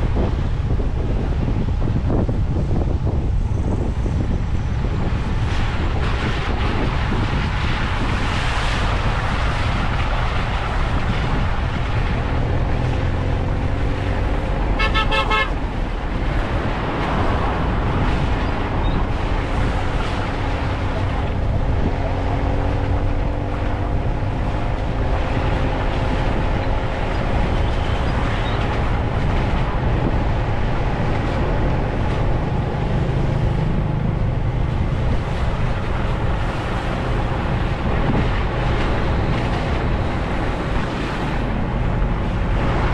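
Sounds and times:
vehicle engine and road rumble: 0:00.0 - 0:42.9
vehicle horn toot: 0:14.8 - 0:15.6.

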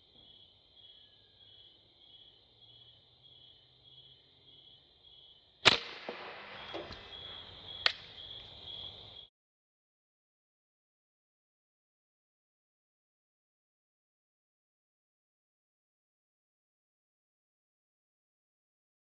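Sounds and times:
air rifle shot: 0:05.6 - 0:08.1
insect high-pitched pulsing call: 0:06.5 - 0:09.3.

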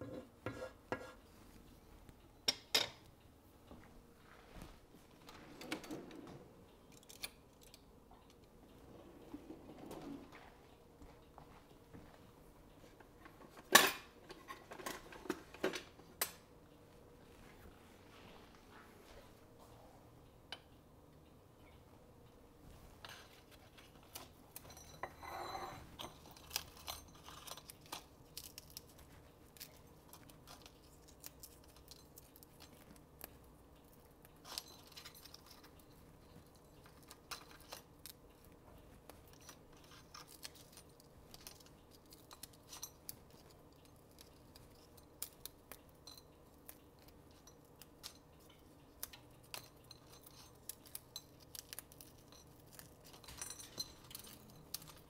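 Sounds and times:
bacon crackling and snapping: 0:26.2 - 0:35.6, 0:39.3 - 0:53.5.

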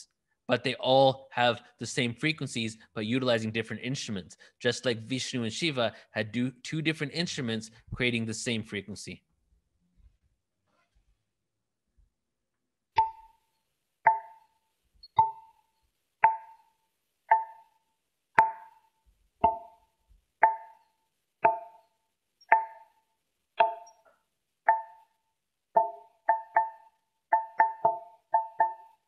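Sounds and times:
percussive knocking note: 0:14.1 - 0:14.4, 0:18.4 - 0:18.8, 0:19.4 - 0:19.8, 0:20.4 - 0:20.8, 0:21.4 - 0:21.8, 0:22.5 - 0:22.8, 0:23.6 - 0:23.9, 0:25.8 - 0:28.8.

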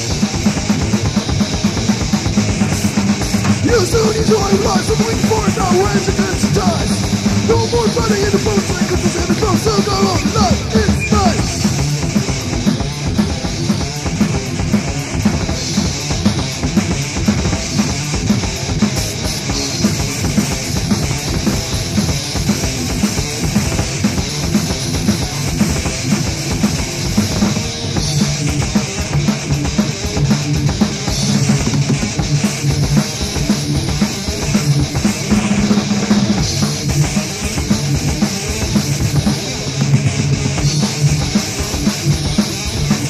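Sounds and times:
thrash metal band playing: 0:00.0 - 0:43.0.

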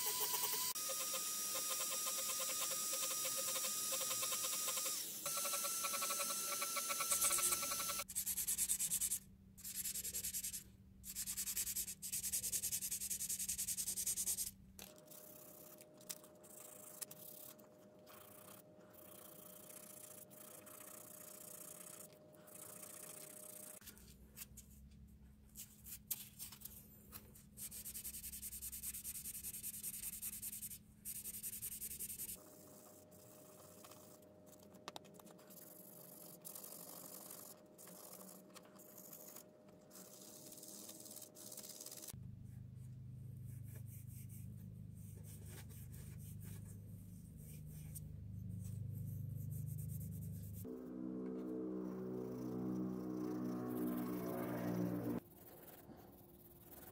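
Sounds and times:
abrasive pad scratching wood: 0:01.7 - 0:08.0
low hum: 0:48.0 - 0:55.2.

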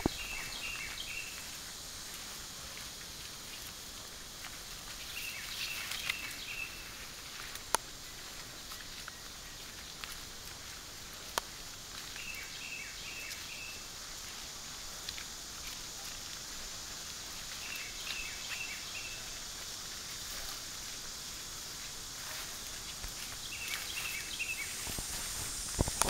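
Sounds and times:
bird chirping: 0:00.0 - 0:01.4, 0:23.4 - 0:25.0
rustling through brush: 0:00.0 - 0:26.0
steady high hiss: 0:00.0 - 0:26.0.

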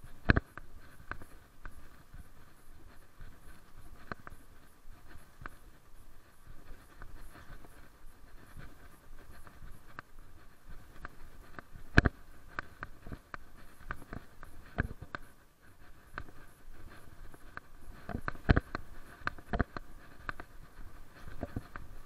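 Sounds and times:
gear rubbing and tapping: 0:00.0 - 0:22.0.

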